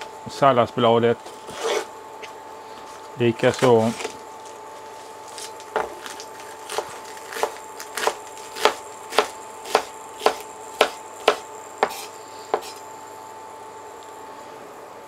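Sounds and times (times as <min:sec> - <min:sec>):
knife chopping lettuce on wood: 0:05.4 - 0:12.8.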